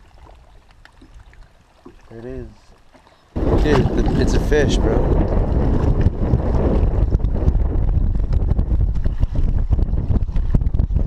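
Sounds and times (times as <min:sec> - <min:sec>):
wind buffeting microphone: 0:03.4 - 0:11.0.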